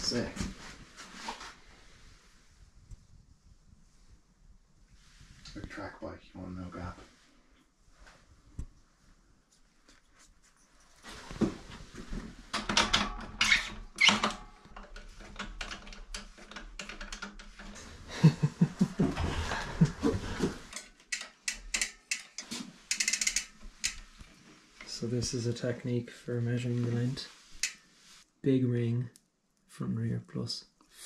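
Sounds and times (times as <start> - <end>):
bicycle chain links rattling: 21.4 - 24.0.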